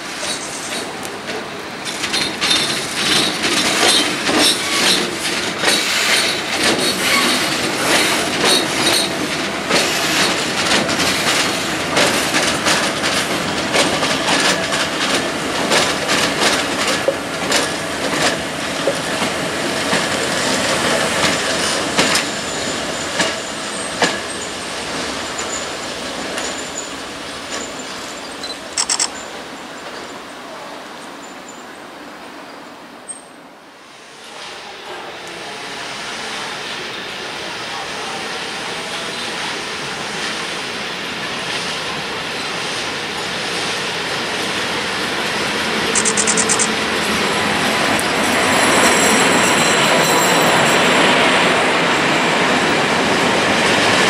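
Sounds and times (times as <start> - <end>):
wheels clattering over rail joints: 0.2 - 30.2.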